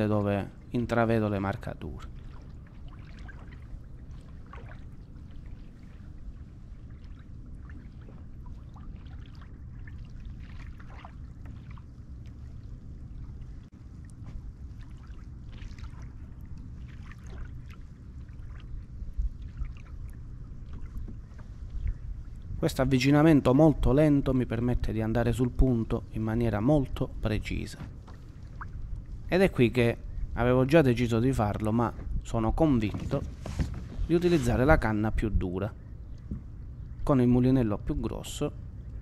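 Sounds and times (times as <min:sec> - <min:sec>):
water lapping against kayak hull: 0:00.0 - 0:22.6, 0:26.8 - 0:29.4, 0:31.6 - 0:35.1, 0:35.8 - 0:37.0
small splashes: 0:02.0 - 0:06.1, 0:06.8 - 0:22.4, 0:27.7 - 0:29.1.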